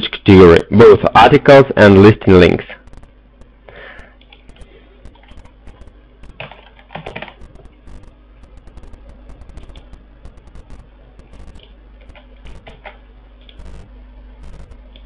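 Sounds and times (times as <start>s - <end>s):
keyboard typing clicks: 4.2s - 13.9s.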